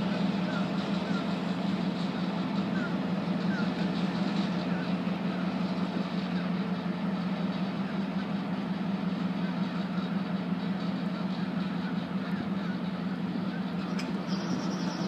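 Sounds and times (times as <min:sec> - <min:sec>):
diesel locomotive engine running: 0:00.0 - 0:15.0.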